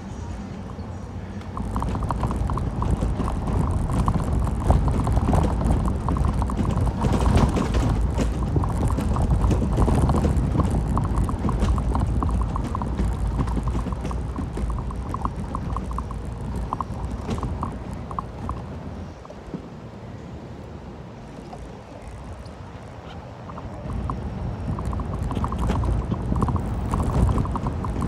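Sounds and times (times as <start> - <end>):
road rumble: 0.0 - 28.0
fast light ticking: 1.4 - 18.7, 23.5 - 28.0
wind buffeting microphone: 1.4 - 19.7, 21.3 - 28.0.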